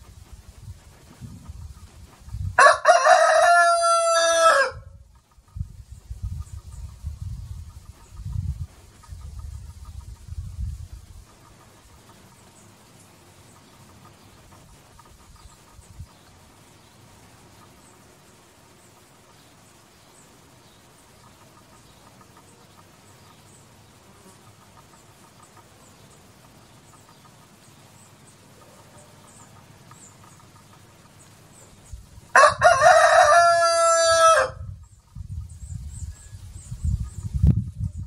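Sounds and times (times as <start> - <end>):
rooster crowing: 2.6 - 5.0, 32.3 - 34.7
soft high ticks: 24.3 - 31.7.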